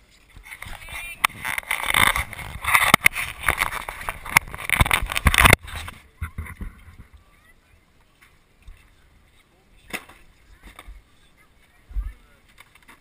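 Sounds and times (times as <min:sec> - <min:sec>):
fingers scraping camera housing: 0:00.4 - 0:05.8.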